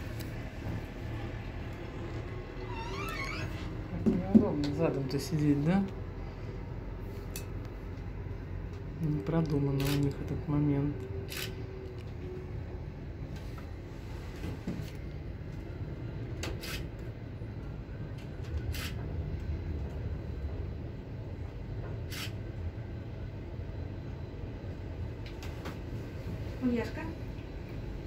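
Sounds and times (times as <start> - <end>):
cable car gondola rumble: 0.0 - 28.0.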